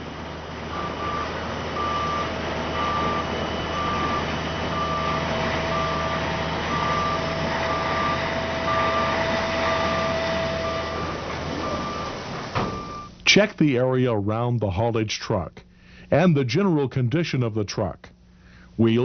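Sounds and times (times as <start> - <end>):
back-up alarm beeping: 0.0 - 13.2
truck engine running: 0.0 - 13.2
steady whine: 0.0 - 19.0.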